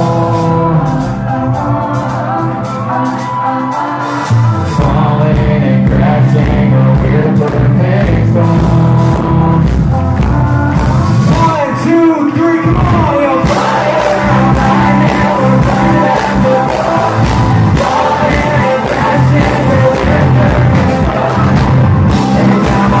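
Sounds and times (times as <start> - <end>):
country band playing: 0.0 - 23.0
man singing: 0.0 - 23.0.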